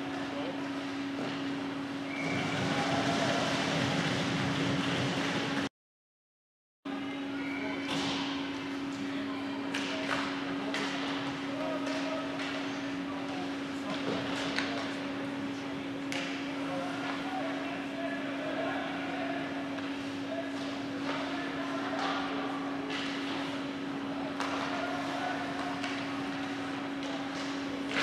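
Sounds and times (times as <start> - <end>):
electrical hum: 0.0 - 5.7.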